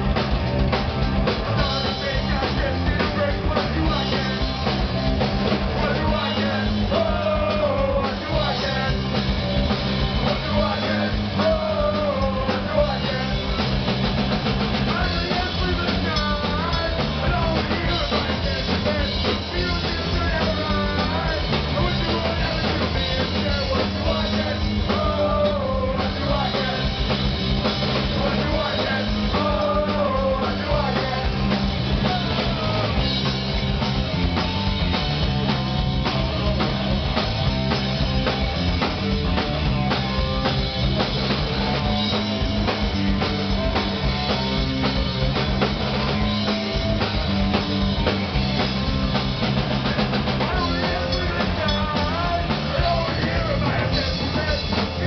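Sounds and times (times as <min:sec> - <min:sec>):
punk rock band playing: 0:00.0 - 0:55.0
person singing: 0:01.6 - 0:04.8, 0:05.7 - 0:09.3, 0:10.1 - 0:13.6, 0:14.8 - 0:27.2, 0:28.0 - 0:33.3, 0:50.0 - 0:55.0.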